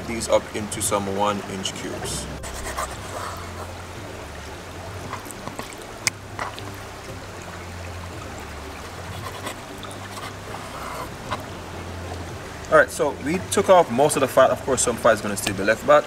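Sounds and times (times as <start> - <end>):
low hum: 0.0 - 12.7
rushing background noise: 0.0 - 16.0.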